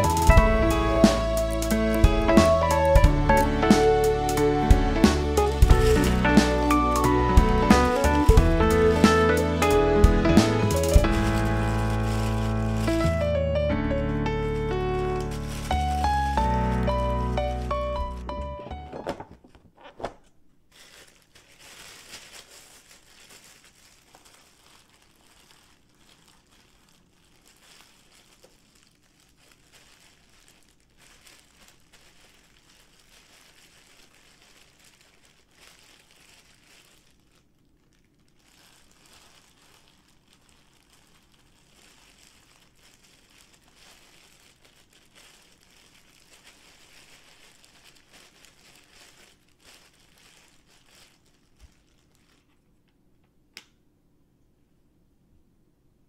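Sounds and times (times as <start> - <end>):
plastic gloves crinkling: 0.0 - 52.9.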